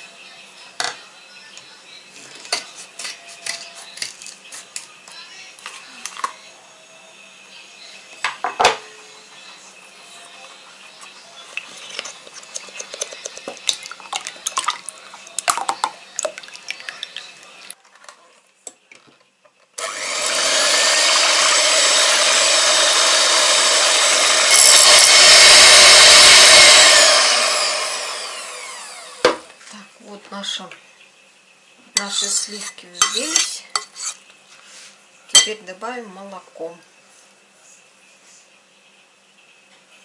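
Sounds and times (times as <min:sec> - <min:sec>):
electric hand mixer whining: 0:19.8 - 0:29.4.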